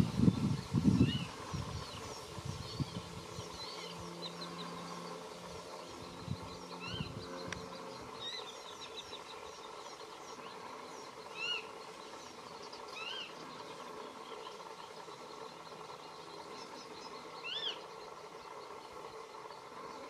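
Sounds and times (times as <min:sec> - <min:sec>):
faint high twittering: 0:00.0 - 0:20.0
faint steady hum: 0:00.0 - 0:20.0.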